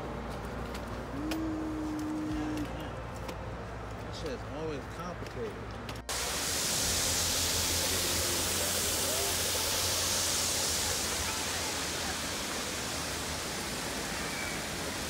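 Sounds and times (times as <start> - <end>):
faint voices: 1.1 - 3.5, 10.7 - 14.8
steady hiss: 6.1 - 15.0.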